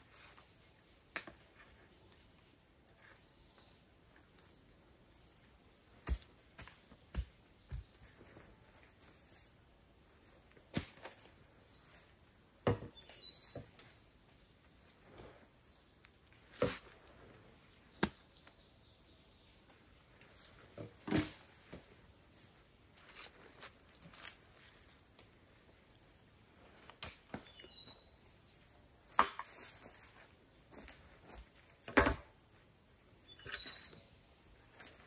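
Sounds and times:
knocks and rustles of handling: 0:16.3 - 0:17.4.

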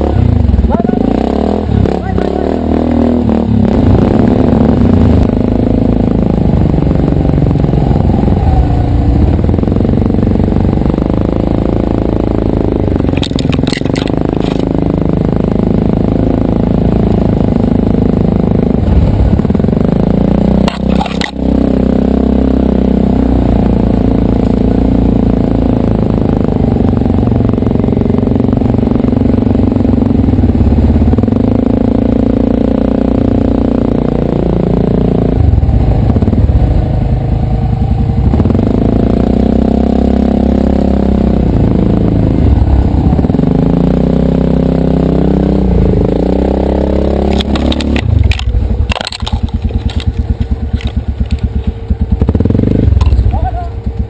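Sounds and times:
quad bike engines running: 0:00.0 - 0:54.0
sharp clatters: 0:13.0 - 0:14.8, 0:20.6 - 0:21.5, 0:47.2 - 0:51.8.

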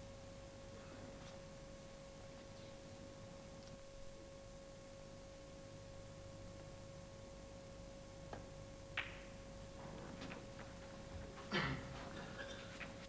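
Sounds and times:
electrical hum: 0:00.0 - 0:13.0
cue tip striking ball: 0:08.3 - 0:13.0
snooker balls clicking together: 0:08.3 - 0:13.0.

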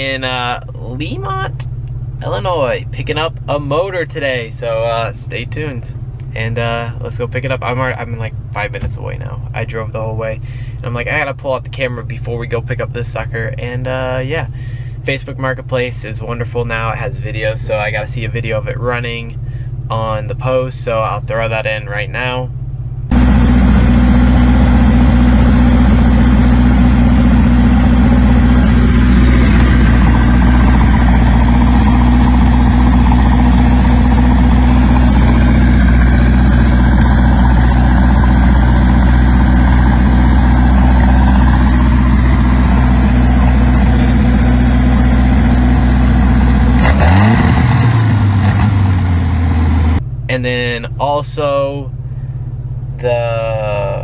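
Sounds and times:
marine engine idling and revving: 0:22.6 - 0:50.1.

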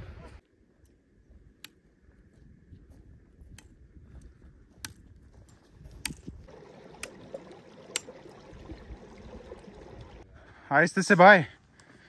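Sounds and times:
trekking poles clicking on stones: 0:03.4 - 0:06.5
stream trickling among rocks: 0:06.4 - 0:10.3.

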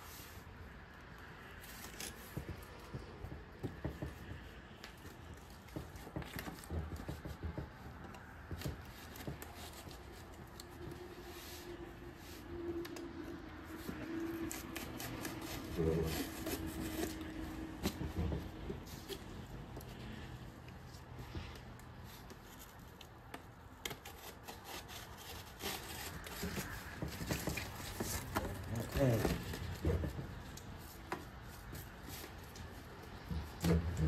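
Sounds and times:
cardboard rustling and scraping: 0:00.0 - 0:34.0.

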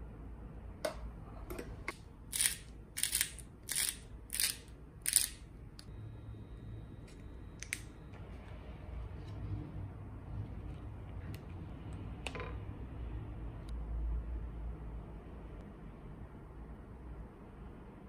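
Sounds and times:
spice grinder grinding: 0:02.3 - 0:05.5.

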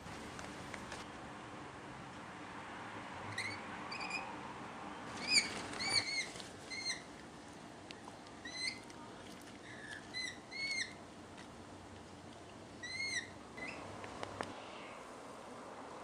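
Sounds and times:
small bird chirping: 0:05.2 - 0:07.1, 0:08.4 - 0:08.8, 0:09.6 - 0:11.0, 0:12.8 - 0:13.9.

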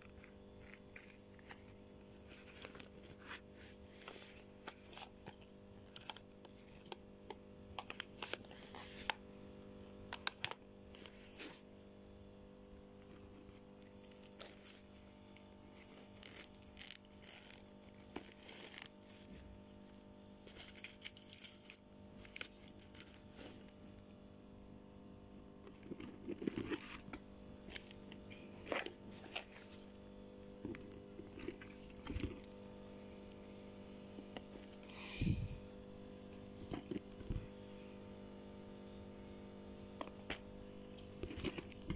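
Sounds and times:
steady low hum: 0:00.0 - 0:41.9
fabric and plastic pouches rustling: 0:13.1 - 0:24.2, 0:25.5 - 0:32.6.

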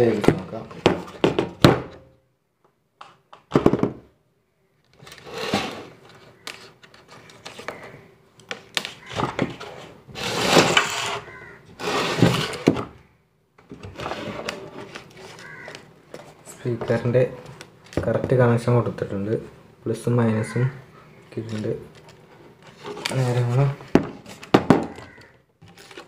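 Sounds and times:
plastic bottle handling rustles: 0:21.4 - 0:26.0.

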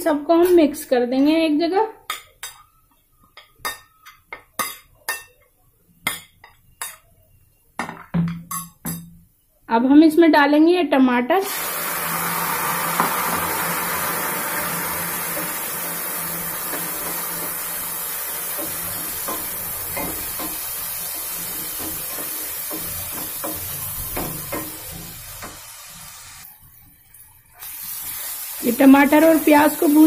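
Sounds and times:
food sizzling in hot oil: 0:11.4 - 0:30.0.

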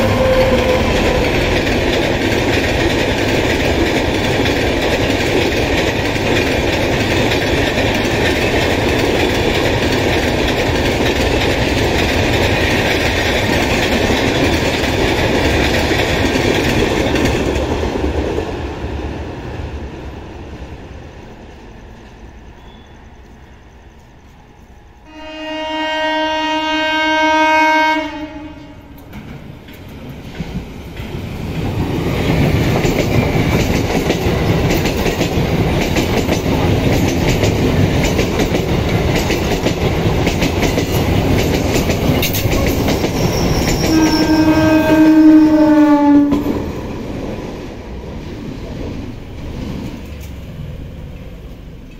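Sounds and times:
train horn: 0:00.0 - 0:01.6, 0:22.6 - 0:23.0, 0:25.0 - 0:29.0, 0:43.2 - 0:46.7
train wheels rumbling on rails: 0:00.0 - 0:51.9.

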